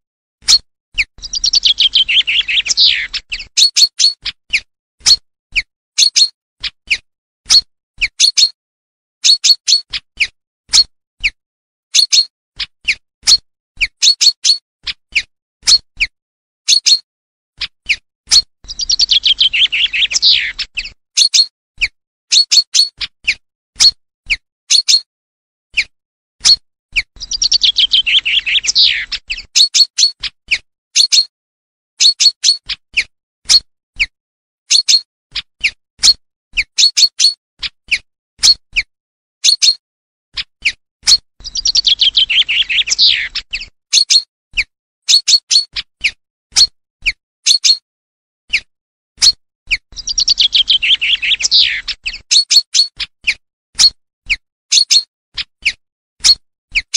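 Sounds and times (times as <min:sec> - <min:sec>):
short sharp bird calls: 0:01.2 - 0:04.7, 0:17.9 - 0:21.5, 0:27.2 - 0:30.2, 0:50.0 - 0:52.9.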